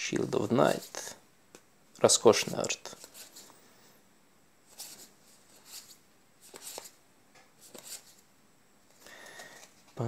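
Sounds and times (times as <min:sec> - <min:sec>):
cards sliding swishes: 0:02.4 - 0:03.6, 0:04.7 - 0:07.0, 0:07.6 - 0:08.2.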